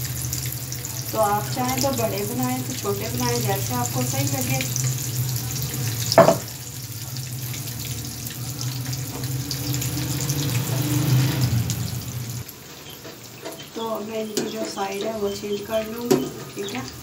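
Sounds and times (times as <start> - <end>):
oil sizzling and bubbling: 0.0 - 17.0
loud clunk: 6.1 - 6.5.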